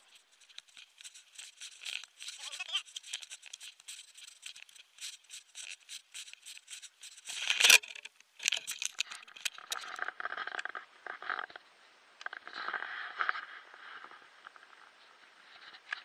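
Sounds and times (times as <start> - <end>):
sharp ticks: 0.0 - 10.0.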